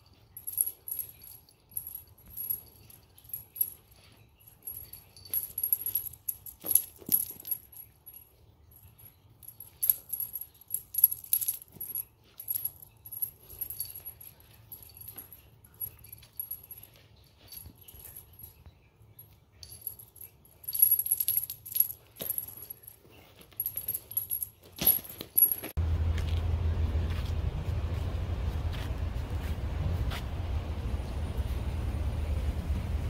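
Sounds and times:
small jingle bell jingling: 0:00.0 - 0:25.8.

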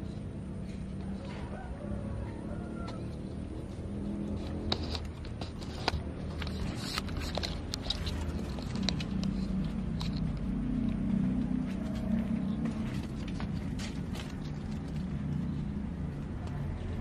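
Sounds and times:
light clicks and scratches: 0:00.0 - 0:17.0
steady low hum: 0:00.0 - 0:17.0.

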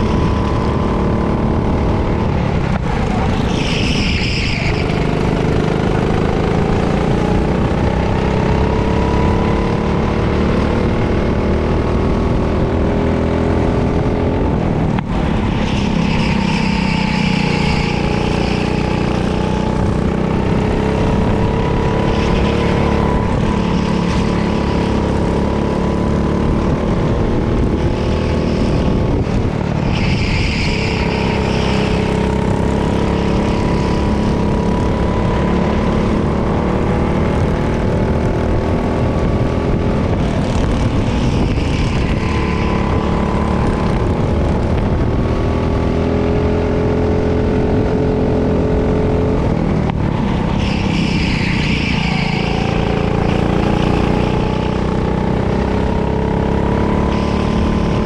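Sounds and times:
go-kart engine running hard: 0:00.0 - 0:58.0.

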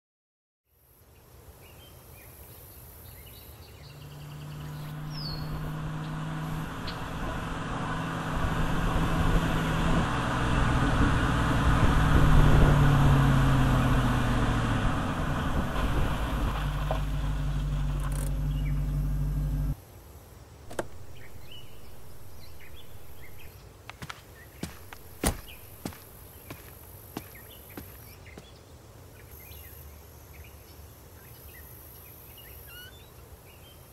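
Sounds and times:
car engine running: 0:03.8 - 0:19.8, 0:20.7 - 0:23.5, 0:24.6 - 0:26.7
sharp clicks and knocks: 0:20.7 - 0:21.1.

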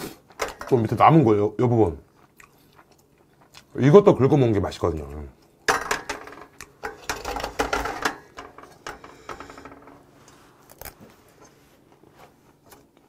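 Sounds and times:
person chewing: 0:02.0 - 0:03.8.

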